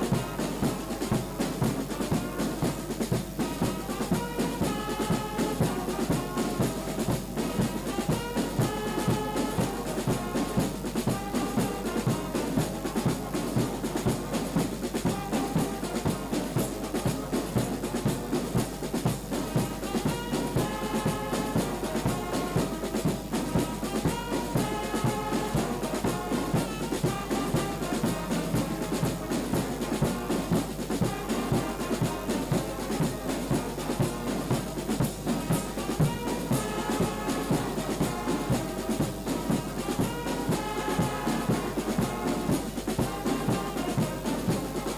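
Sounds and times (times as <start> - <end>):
steady drum beat: 0.0 - 44.9
trumpets and trombones: 0.0 - 44.9.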